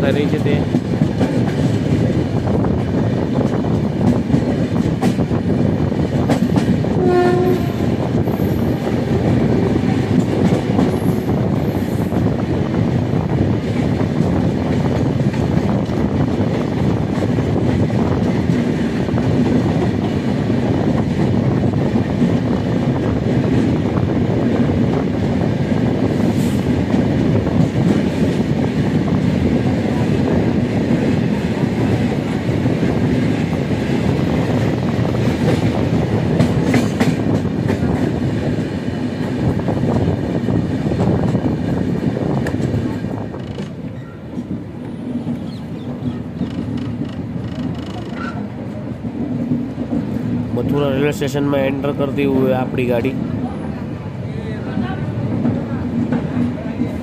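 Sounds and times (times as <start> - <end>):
passing freight wagons: 0.0 - 57.0
train rumble and wheel clatter: 0.0 - 57.0
train horn blast: 7.0 - 7.9.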